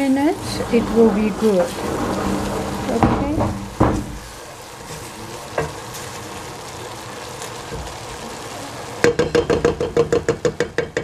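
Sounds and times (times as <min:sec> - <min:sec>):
food sizzling in a pot: 0:00.0 - 0:11.0
spatula knocking on a metal pot: 0:09.0 - 0:11.0.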